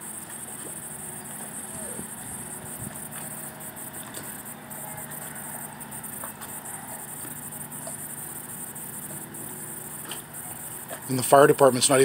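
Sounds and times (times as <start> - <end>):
low even hum: 0.0 - 12.0
faint ticks: 5.1 - 9.2.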